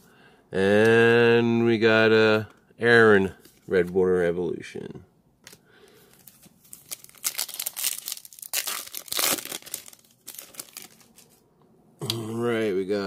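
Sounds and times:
foil wrapper crinkling and tearing: 6.1s - 11.4s.

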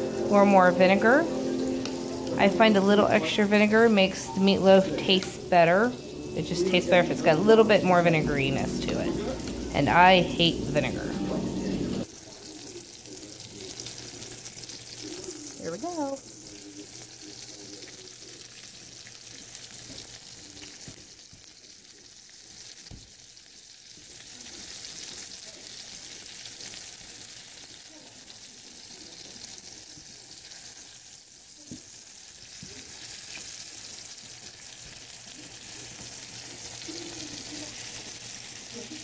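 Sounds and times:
meat sizzling in a skillet: 0.0s - 39.0s.

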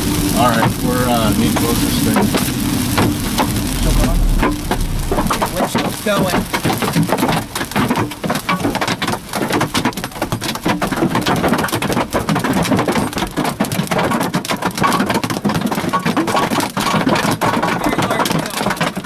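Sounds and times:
hail pelting a car: 0.0s - 19.0s.

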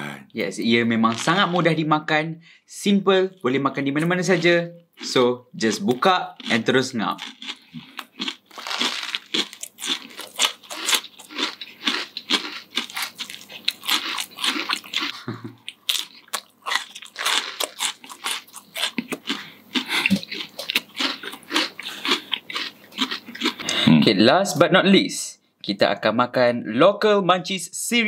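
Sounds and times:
people chewing crunchy snack: 4.0s - 24.1s.

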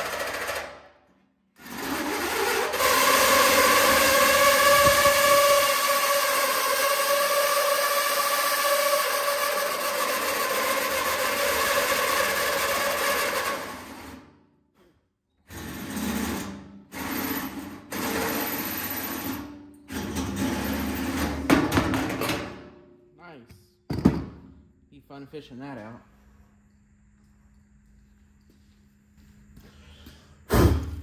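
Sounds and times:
drill cutting through metal: 1.6s - 14.2s.

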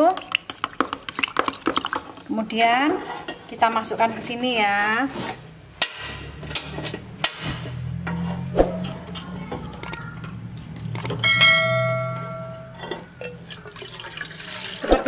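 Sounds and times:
bell chime: 11.2s - 12.8s.

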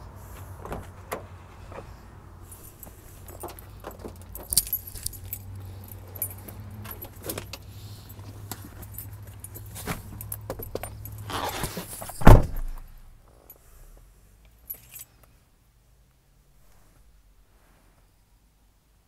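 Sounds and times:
footsteps and handling knocks: 0.3s - 2.0s, 2.6s - 12.9s
keys jangling: 2.5s - 12.8s, 14.6s - 15.3s.

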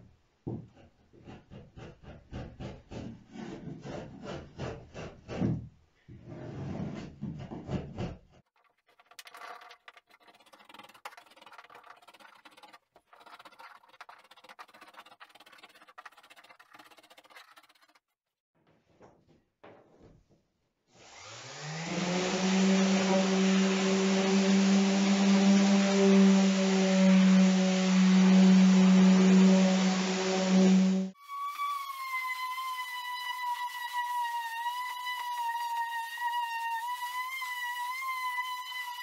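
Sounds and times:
hand scraper on wood: 0.6s - 5.6s, 6.4s - 18.0s
electric sander motor humming: 21.0s - 34.0s.

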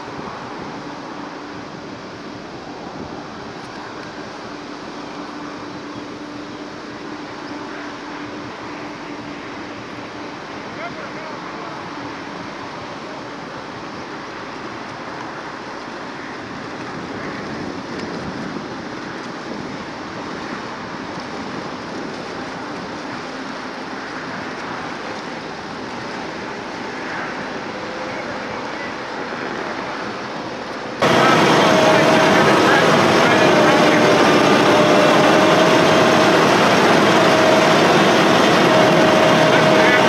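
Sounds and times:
water wash: 0.0s - 40.0s
wind: 0.0s - 40.0s
truck engine running: 31.0s - 40.0s.

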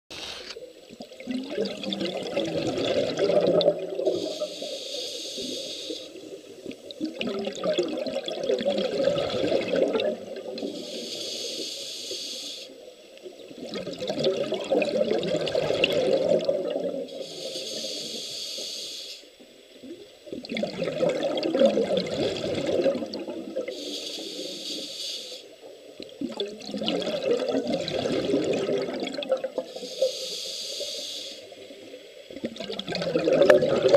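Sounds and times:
bubbling exhalations: 1.2s - 4.4s, 7.0s - 10.8s, 13.6s - 17.2s, 20.4s - 23.7s, 26.1s - 29.7s, 32.3s - 33.9s
regulator hissing inhalation: 4.0s - 6.6s, 10.5s - 12.8s, 17.1s - 19.4s, 23.6s - 25.6s, 29.6s - 31.7s.

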